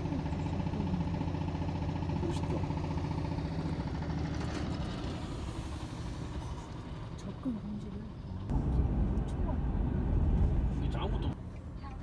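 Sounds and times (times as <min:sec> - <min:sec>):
diesel engine putter: 0:00.0 - 0:09.7.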